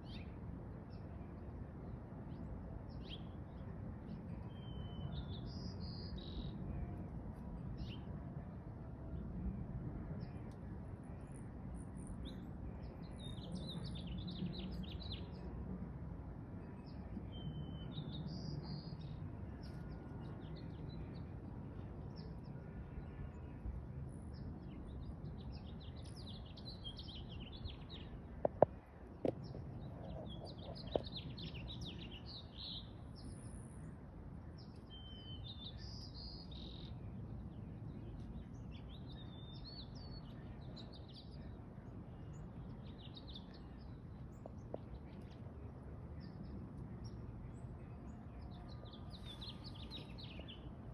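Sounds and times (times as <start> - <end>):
low background noise: 0.0 - 50.9
small birds chirping: 25.5 - 33.4.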